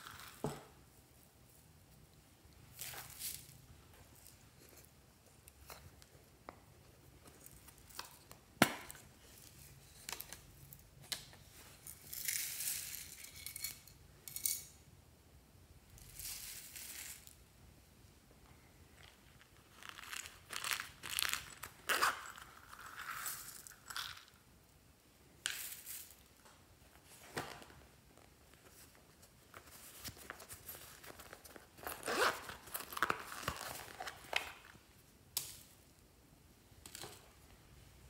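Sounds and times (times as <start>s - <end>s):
rustling and crinkling: 25.6s - 35.0s.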